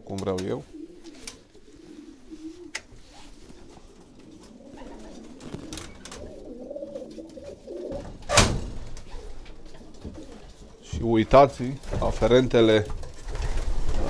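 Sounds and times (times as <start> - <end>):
pigeons cooing: 0.6 - 11.2
pigeon wings fluttering: 1.0 - 7.7.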